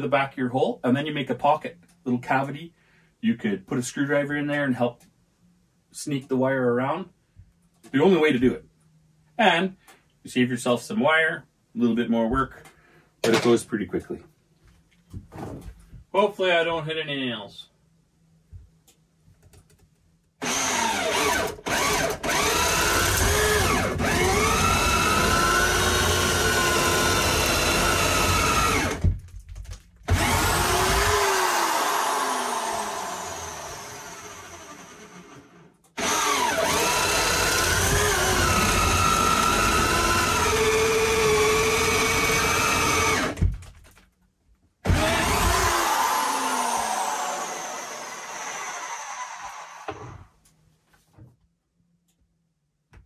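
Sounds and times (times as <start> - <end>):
power drill boring into wood: 20.4 - 29.0, 30.1 - 43.4, 44.8 - 50.2.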